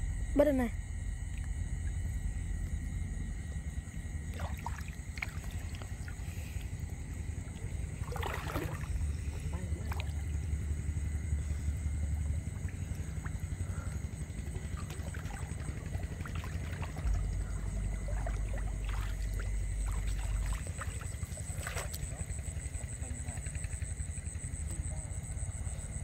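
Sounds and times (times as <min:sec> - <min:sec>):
high insect whine: 0:00.0 - 0:26.0
steady low rumble: 0:00.0 - 0:26.0
wading through shallow water: 0:01.0 - 0:26.0.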